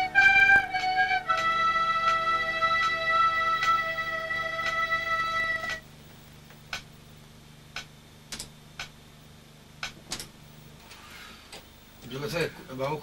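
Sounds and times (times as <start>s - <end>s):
low steady hum: 0.0s - 13.0s
click track ticking: 6.5s - 7.0s, 7.7s - 9.0s, 9.8s - 10.3s.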